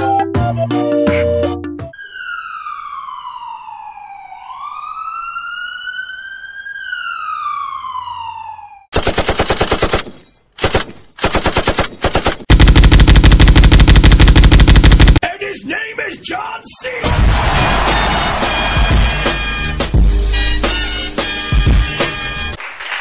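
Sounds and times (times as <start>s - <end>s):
ambulance siren wailing: 0.0s - 9.0s
machine-gun fire bursts: 8.9s - 15.2s
minigun firing continuously: 8.9s - 15.2s.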